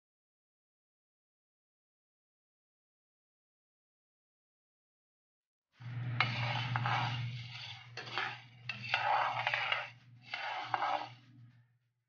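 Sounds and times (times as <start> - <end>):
metal ladle scraping pan: 5.8 - 11.3.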